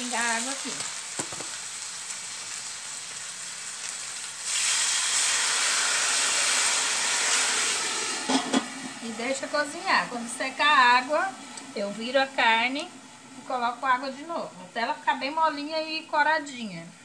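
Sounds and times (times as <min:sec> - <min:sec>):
meat sizzling in hot fat: 0:00.0 - 0:16.5
steaming hiss: 0:03.0 - 0:13.3
water poured into hot pot: 0:04.4 - 0:09.1
pot lid knocks: 0:08.3 - 0:08.7.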